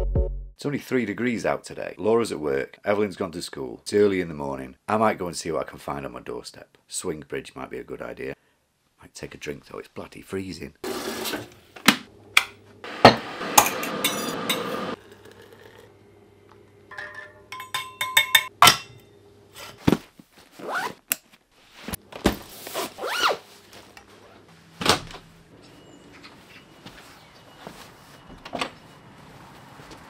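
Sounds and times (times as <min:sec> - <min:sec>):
kitchenware clinking and scraping: 0:13.1 - 0:15.8, 0:16.9 - 0:19.0.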